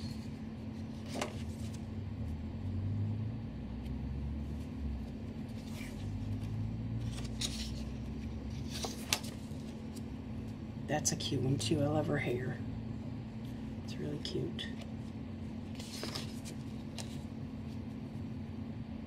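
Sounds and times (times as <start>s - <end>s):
steady low hum: 0.0s - 19.0s
paper sheets rustling: 0.1s - 1.9s, 5.5s - 10.1s, 15.7s - 17.4s.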